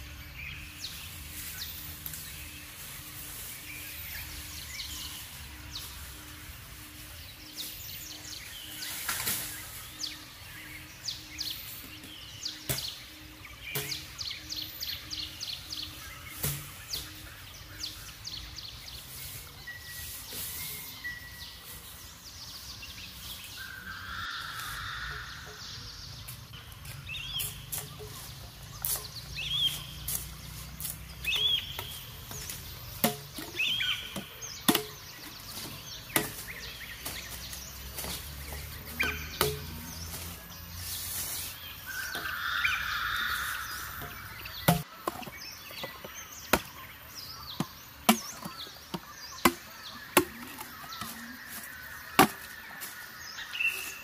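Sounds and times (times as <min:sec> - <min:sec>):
birds chirping: 0:00.0 - 0:54.0
blade chopping wood: 0:31.3 - 0:37.2, 0:47.6 - 0:50.8.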